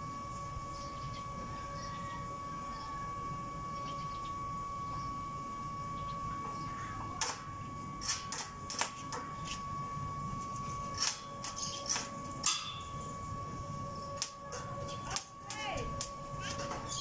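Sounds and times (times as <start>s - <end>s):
steady high tone: 0.0s - 17.0s
welding arc crackles: 7.2s - 17.0s.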